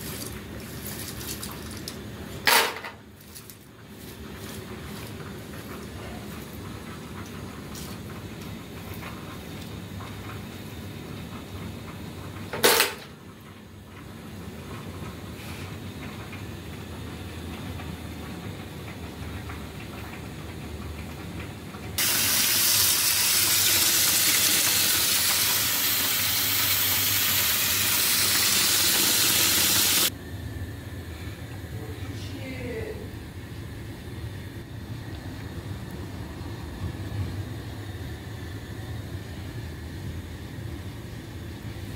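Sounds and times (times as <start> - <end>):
running tap water: 22.0 - 30.1.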